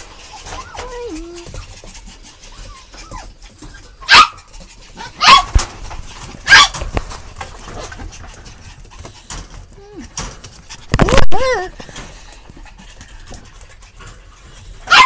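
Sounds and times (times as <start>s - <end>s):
puppies yipping: 0.0s - 6.9s, 14.4s - 15.0s.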